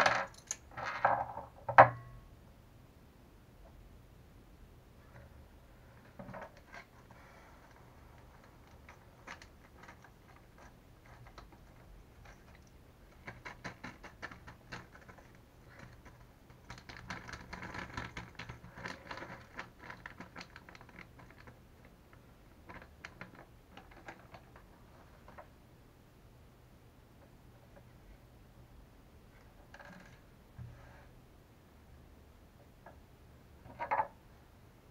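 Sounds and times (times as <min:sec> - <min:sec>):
small hard parts clicking and rattling: 0:00.0 - 0:01.9, 0:06.0 - 0:25.5.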